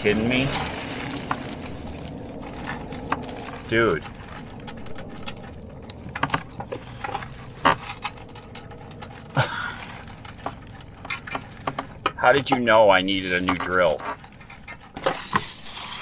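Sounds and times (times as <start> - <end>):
cardboard rustling: 0.0 - 8.3
plastic bag crinkling: 0.0 - 16.0
irregular clicks and ticks: 2.3 - 12.7.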